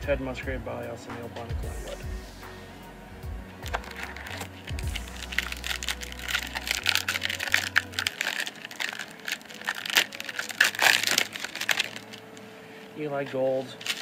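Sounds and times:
foil wrapper crinkling and tearing: 0:03.6 - 0:14.0.

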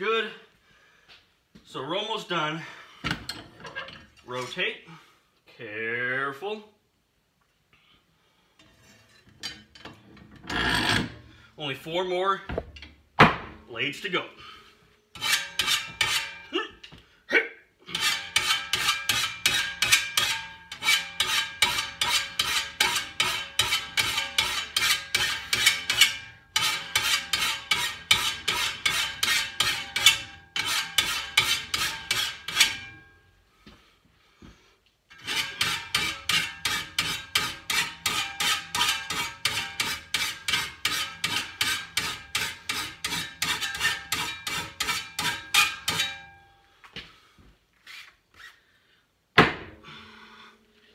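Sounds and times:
hand file rasping on steel blade: 0:15.2 - 0:16.4, 0:17.9 - 0:32.9, 0:35.1 - 0:46.2.

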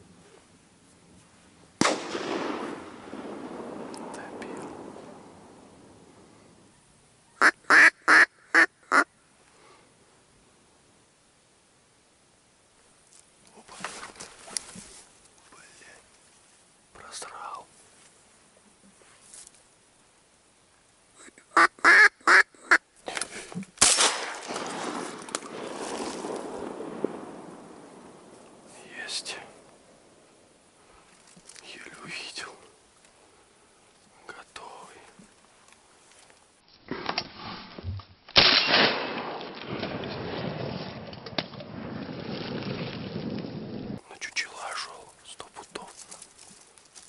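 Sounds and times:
shotgun shot echoing: 0:01.8 - 0:05.5, 0:23.8 - 0:27.8, 0:38.4 - 0:40.6
duck quacks: 0:07.4 - 0:09.1, 0:21.5 - 0:22.8
rustling: 0:12.8 - 0:20.1, 0:23.0 - 0:38.4, 0:39.4 - 0:47.0
wind noise: 0:39.6 - 0:44.2.

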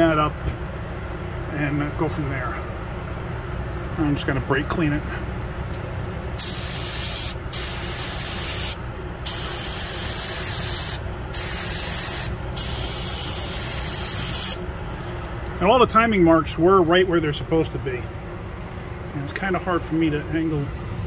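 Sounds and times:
aerosol can spraying: 0:06.4 - 0:14.6.

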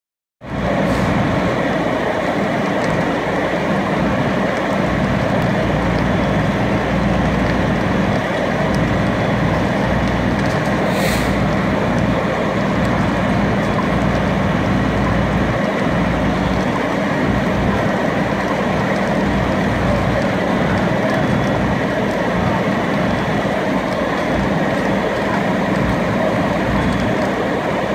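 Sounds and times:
diesel engines rumbling: 0:00.4 - 0:27.9
short hiss: 0:10.8 - 0:11.4.

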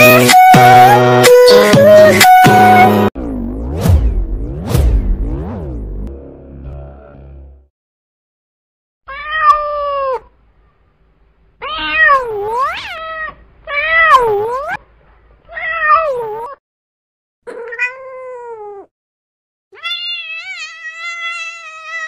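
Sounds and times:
kitten meowing: 0:11.6 - 0:14.8, 0:17.5 - 0:18.9, 0:19.8 - 0:22.0.

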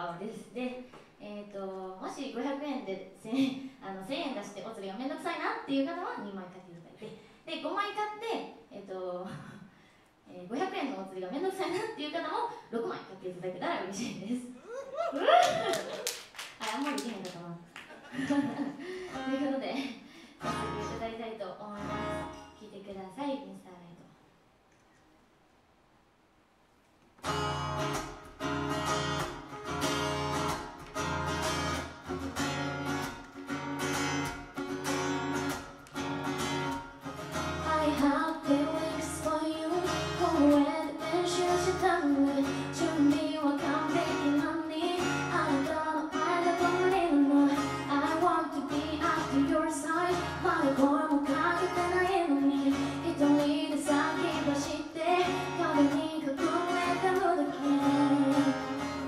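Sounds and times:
acoustic guitar strumming: 0:20.4 - 0:21.0, 0:21.8 - 0:22.6, 0:27.2 - 0:59.0
woman singing: 0:37.5 - 0:59.0.

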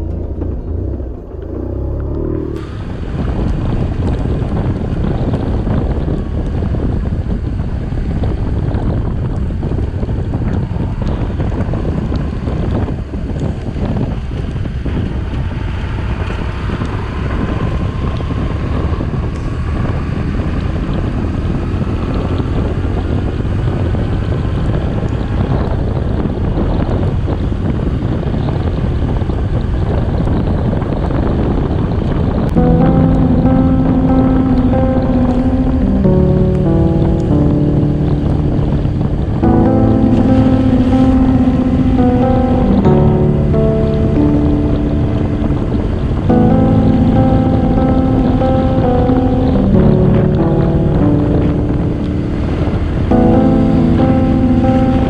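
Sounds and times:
motorcycle engine rumble: 0:00.0 - 0:22.9
wind buffeting microphone: 0:00.0 - 0:55.0.

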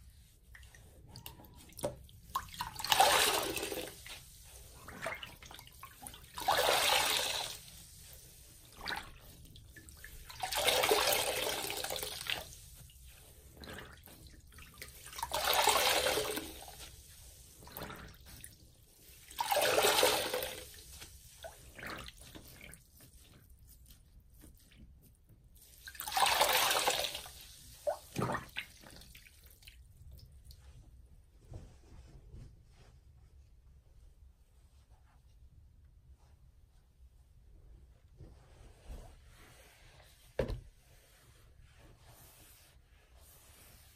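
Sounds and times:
water gushing from squeezed sponge: 0:00.6 - 0:24.9, 0:25.6 - 0:30.4.

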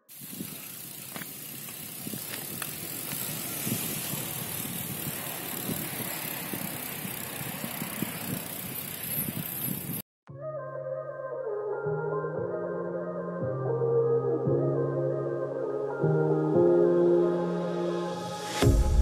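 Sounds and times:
bicycle tyres on asphalt: 0:00.0 - 0:10.0
wind noise: 0:01.9 - 0:10.0.

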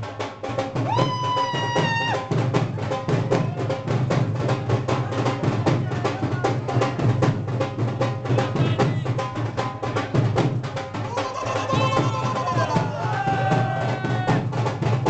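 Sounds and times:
fast drum beat: 0:00.0 - 0:15.0.

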